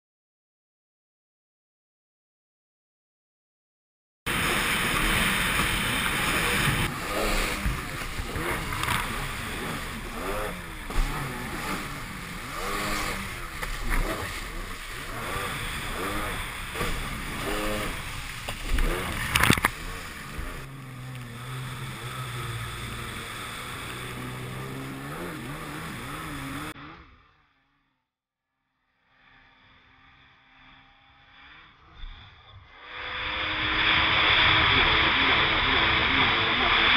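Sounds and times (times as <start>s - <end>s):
water spray rushing: 4.3s - 26.7s
jet ski engine revving: 4.3s - 27.6s, 29.3s - 36.9s
wind: 4.3s - 27.8s, 28.8s - 36.9s.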